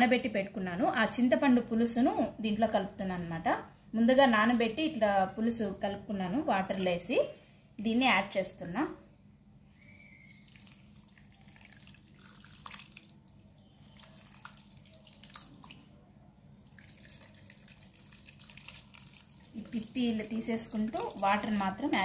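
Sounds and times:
water trickling and dripping: 0:10.4 - 0:22.0.

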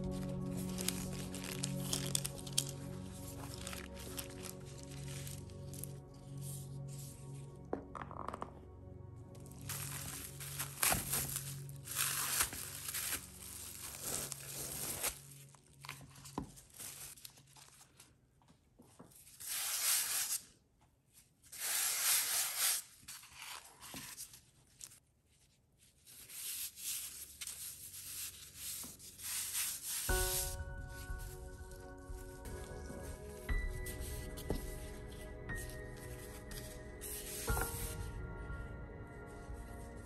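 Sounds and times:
cling film rustling and crinkling: 0:00.0 - 0:06.8, 0:09.5 - 0:18.2
soft music: 0:00.0 - 0:17.2, 0:26.2 - 0:40.0.

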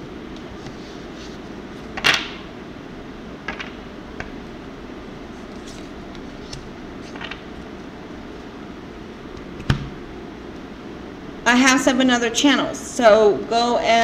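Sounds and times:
steady low hum: 0:00.0 - 0:14.0
cards laid on wooden table: 0:07.0 - 0:07.4.

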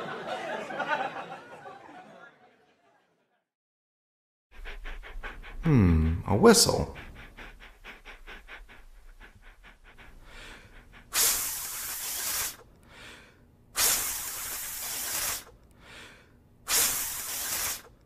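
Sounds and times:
whistle blown breathy hiss: 0:11.1 - 0:12.6, 0:13.8 - 0:15.6, 0:16.7 - 0:17.9.

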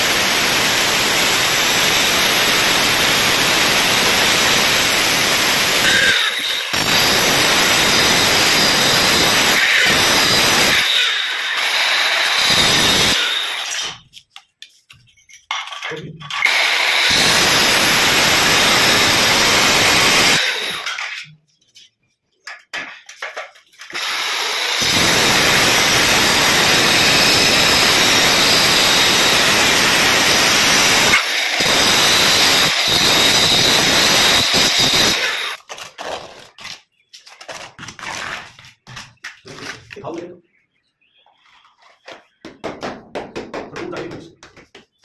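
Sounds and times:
power tool running loudly: 0:00.0 - 0:13.8, 0:16.4 - 0:21.1, 0:23.9 - 0:35.6.

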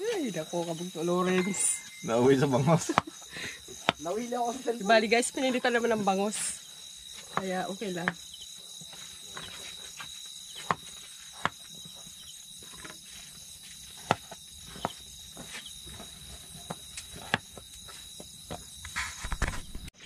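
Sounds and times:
crickets chirring: 0:00.0 - 0:20.0.

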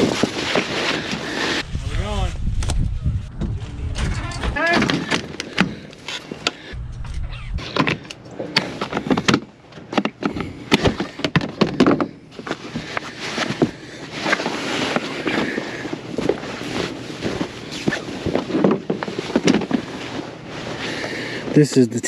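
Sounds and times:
cloth sheets rustling: 0:12.6 - 0:21.1.

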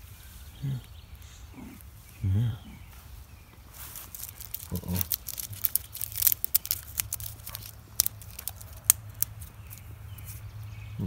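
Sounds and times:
cat claws scratching bark: 0:04.0 - 0:10.6.

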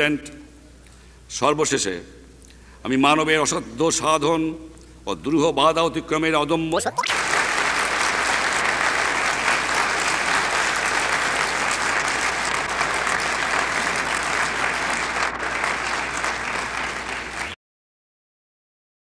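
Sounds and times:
crowd applauding: 0:07.0 - 0:17.6.

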